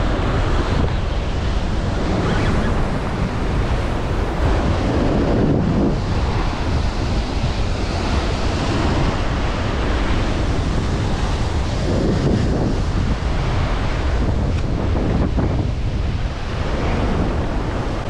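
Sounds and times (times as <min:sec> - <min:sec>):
ocean surf breaking on rocks: 0:00.0 - 0:18.0
wind buffeting microphone: 0:00.0 - 0:18.0.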